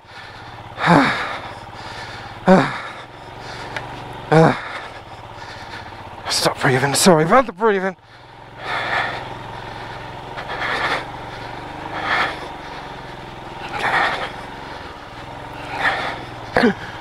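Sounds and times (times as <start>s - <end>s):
heavy breathing into microphone: 0.0s - 6.3s, 8.0s - 17.0s
motorcycle engine running: 0.0s - 17.0s
person grunting: 0.8s - 1.5s, 2.4s - 3.0s, 4.3s - 4.9s, 13.6s - 14.4s, 15.6s - 17.0s.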